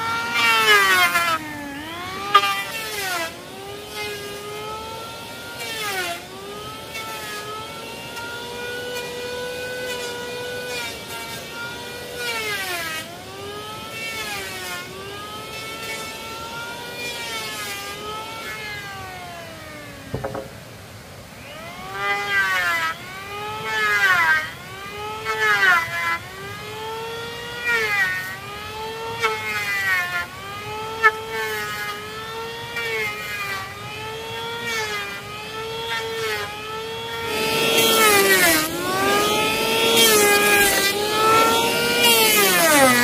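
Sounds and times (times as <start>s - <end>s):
power tool motor whine: 0.0s - 20.6s, 21.2s - 43.0s
harsh rasping noise: 37.3s - 43.0s.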